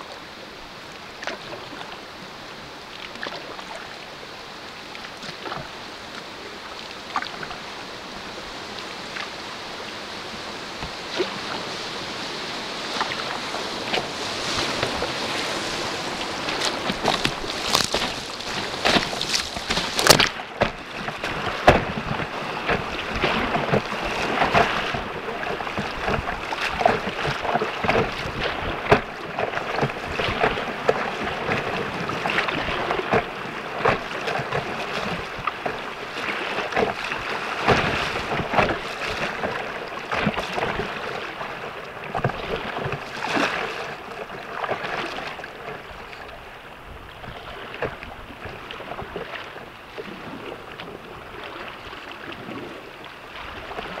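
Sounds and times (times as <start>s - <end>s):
waves splashing against kayak: 0.0s - 54.0s
rapids rushing: 7.6s - 42.5s.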